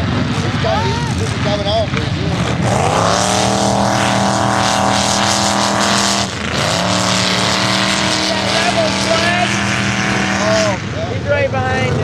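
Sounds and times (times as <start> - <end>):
truck engine revving hard: 0.0 - 12.0.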